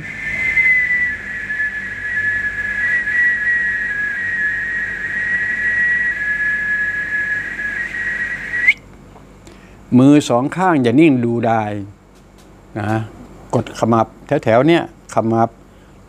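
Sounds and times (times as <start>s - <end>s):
man whistling high note: 0.0s - 8.8s.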